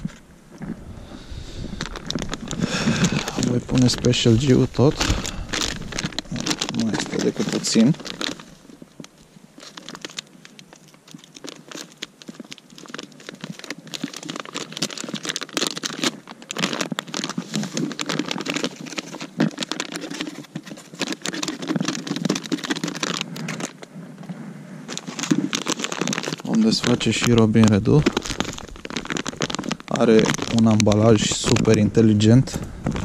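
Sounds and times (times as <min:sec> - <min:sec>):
plastic bag crinkling: 0:00.0 - 0:33.0.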